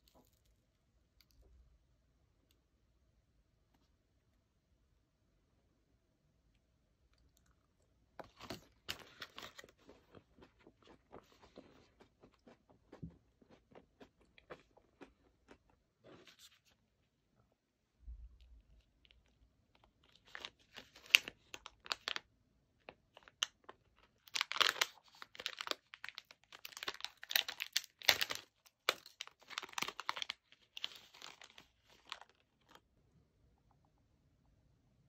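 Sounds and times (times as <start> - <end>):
plastic packaging crinkling: 8.2 - 11.0, 20.0 - 22.2, 23.1 - 32.8.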